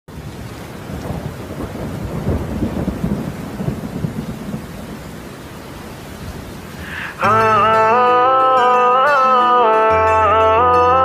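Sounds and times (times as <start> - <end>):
thunder rumbling: 0.1 - 6.8
rain falling: 0.1 - 11.0.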